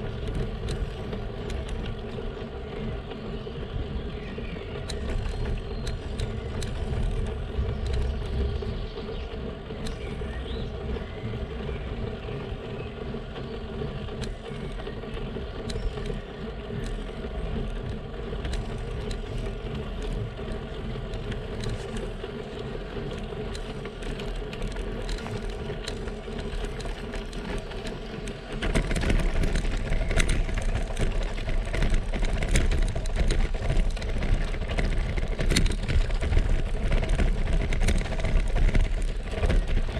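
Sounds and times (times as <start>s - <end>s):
bicycle rattling on cobblestones: 0.0s - 39.9s
bicycle tyres rolling on asphalt: 0.0s - 39.9s
light ticks: 4.8s - 8.6s, 9.8s - 10.2s, 14.1s - 39.9s.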